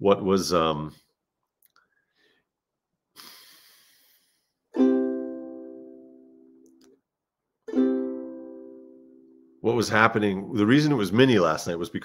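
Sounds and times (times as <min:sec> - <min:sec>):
ukulele chord strummed: 0:04.7 - 0:06.7, 0:07.7 - 0:09.6.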